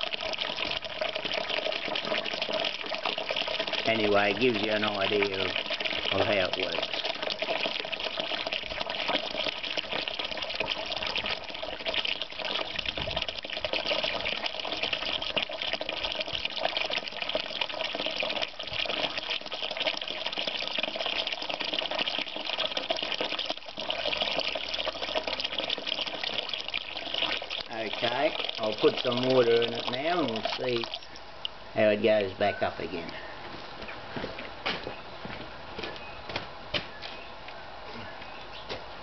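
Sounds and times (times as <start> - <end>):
water running from a tap: 0.0 - 31.2.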